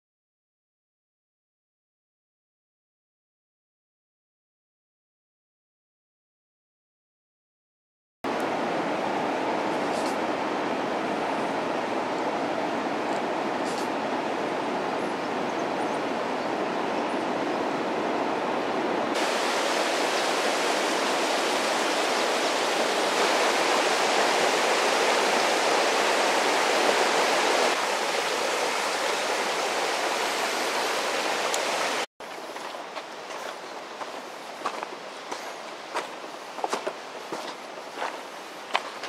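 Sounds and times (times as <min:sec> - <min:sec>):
river running over stones: 0:19.1 - 0:39.0.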